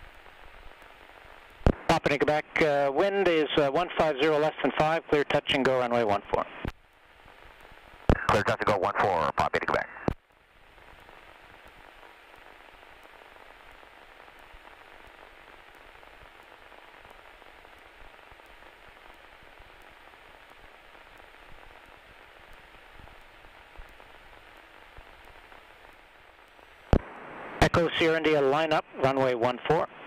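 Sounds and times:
radio intercom hiss: 1.6s - 6.7s, 8.0s - 10.2s, 19.4s - 30.0s
faint clicks: 10.0s - 27.1s.

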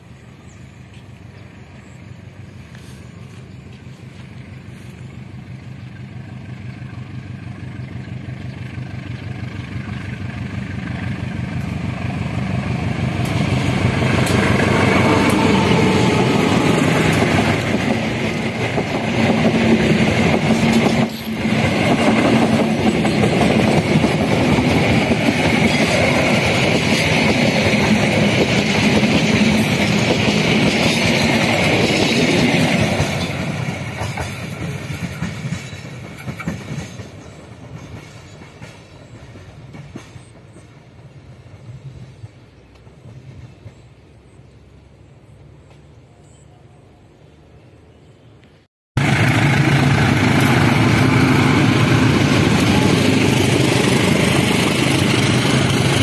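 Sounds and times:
diesel locomotive approaching: 0.0s - 56.0s
train wheels clattering on rails: 8.2s - 44.1s, 49.0s - 56.0s.

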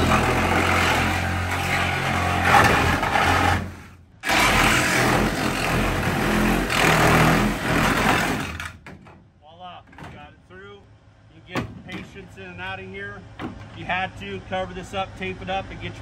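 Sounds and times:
reciprocating saw cutting aluminum: 0.0s - 8.8s.

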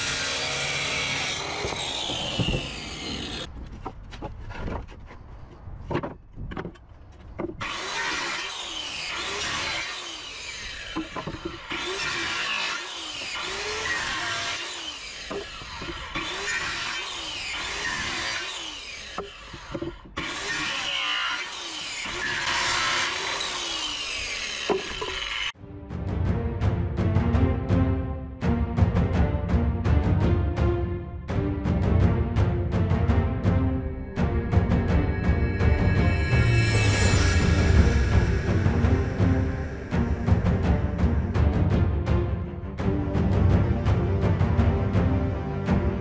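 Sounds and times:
circular saw cutting wood: 0.0s - 3.5s, 7.6s - 25.6s, 34.0s - 42.3s.

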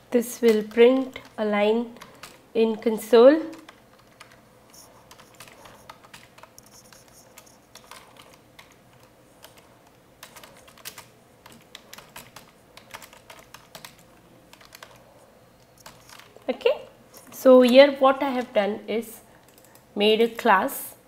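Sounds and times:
computer keyboard typing: 0.4s - 16.5s, 19.4s - 19.9s.

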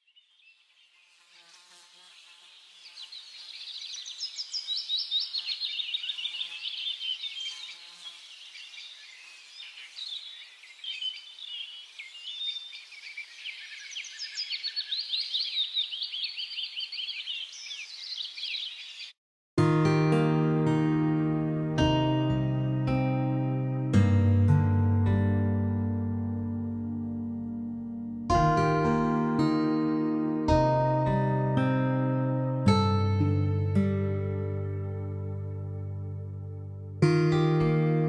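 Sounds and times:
songbirds chirping and trilling: 0.0s - 19.2s.

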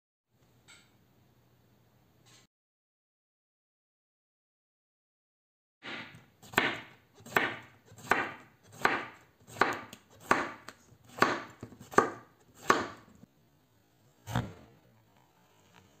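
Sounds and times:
knife cutting on wooden board: 5.9s - 13.1s, 14.3s - 14.6s.

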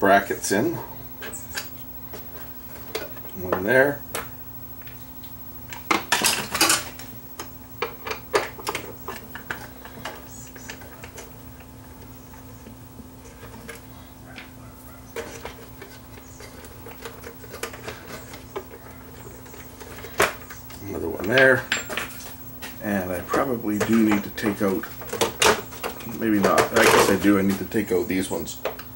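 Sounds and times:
faint steady hum: 0.0s - 28.9s.

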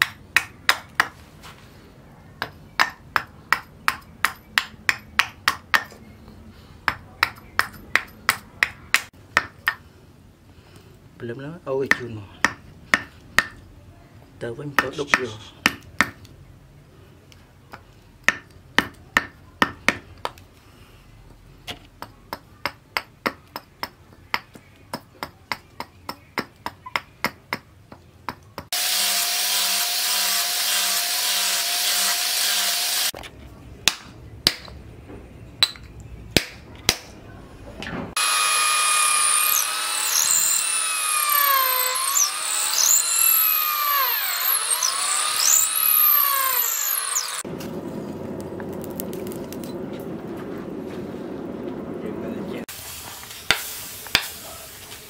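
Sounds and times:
electric drill boring into wood: 28.7s - 33.1s, 38.2s - 47.4s
angle grinder on wood: 28.7s - 33.2s, 38.2s - 47.5s.

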